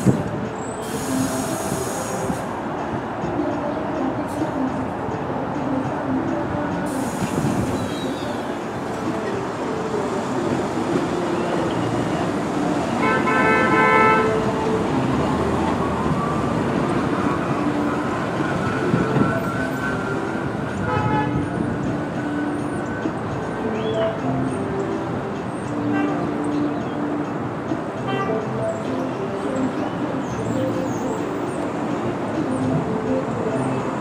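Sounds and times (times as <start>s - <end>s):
train wheels rumbling on rails: 0.0s - 23.6s
train horn: 13.0s - 14.5s, 20.8s - 21.5s.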